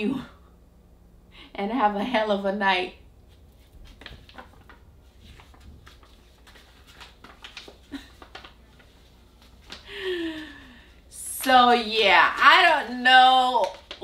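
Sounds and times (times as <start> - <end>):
paper card rustling: 3.3 - 9.9, 12.3 - 14.0.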